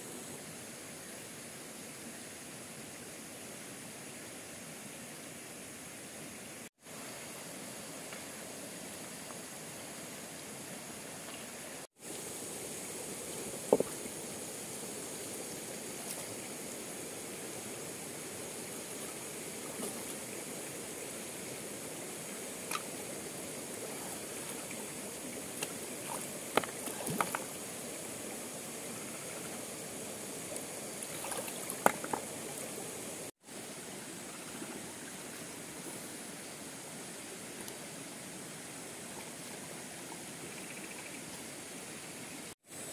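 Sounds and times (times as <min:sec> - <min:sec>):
stream flowing over rocks: 0:06.9 - 0:34.0
water splashes: 0:13.0 - 0:33.3.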